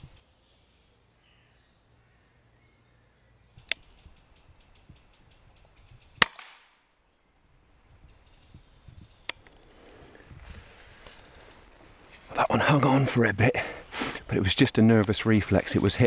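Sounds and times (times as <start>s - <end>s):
air rifle shot: 6.2s - 6.8s.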